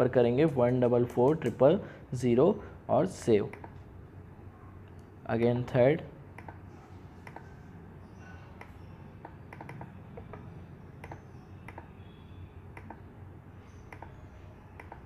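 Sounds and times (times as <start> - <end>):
mouse and keyboard clicks: 7.2 - 7.5, 8.6 - 11.9, 13.9 - 14.2.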